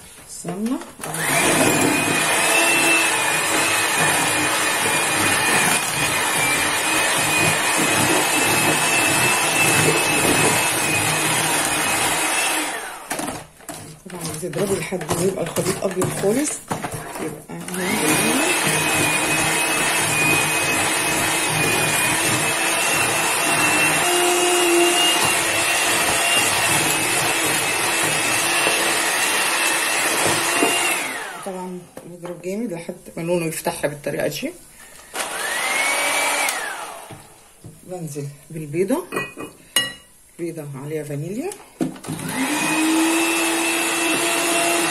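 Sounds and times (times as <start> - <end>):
electric hand mixer running: 1.0 - 31.8, 35.1 - 37.3, 42.0 - 44.9
beaters whipping in plastic bowl: 1.1 - 31.2.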